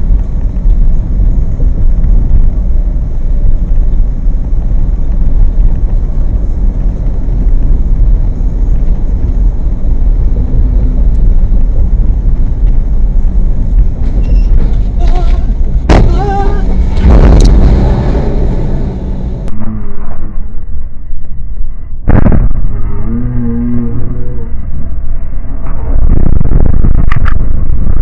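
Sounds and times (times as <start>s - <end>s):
car cabin road and engine rumble: 0.0s - 19.5s.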